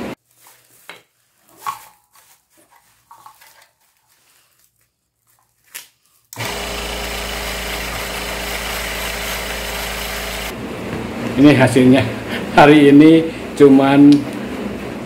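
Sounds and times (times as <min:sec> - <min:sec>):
rotary tool grinding wood: 0:06.4 - 0:10.6.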